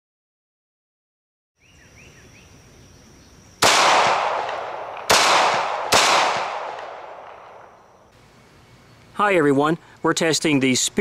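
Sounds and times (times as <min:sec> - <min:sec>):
pistol shot: 0:03.6 - 0:07.8.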